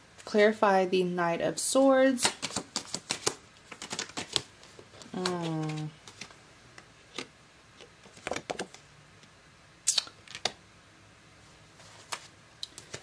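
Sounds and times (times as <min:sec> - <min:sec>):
cards shuffled snapping: 0:02.2 - 0:06.3.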